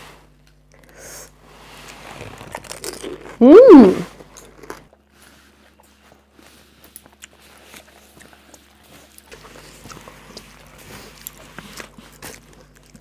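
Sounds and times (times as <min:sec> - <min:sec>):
chewing: 0:04.1 - 0:13.0.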